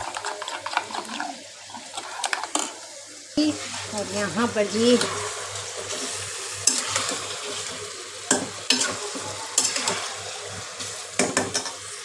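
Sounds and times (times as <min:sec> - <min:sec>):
chicken sizzling in hot oil: 0:00.0 - 0:12.0
spoon knocking and scraping pan: 0:04.9 - 0:10.1, 0:10.8 - 0:11.8.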